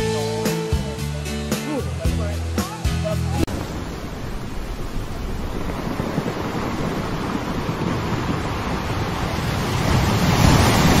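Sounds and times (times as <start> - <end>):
ocean surf washing onto beach: 3.4 - 11.0.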